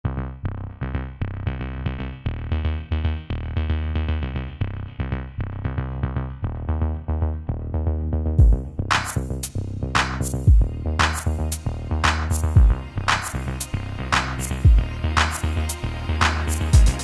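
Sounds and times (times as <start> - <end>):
electronic music with beat: 6.3 - 17.0.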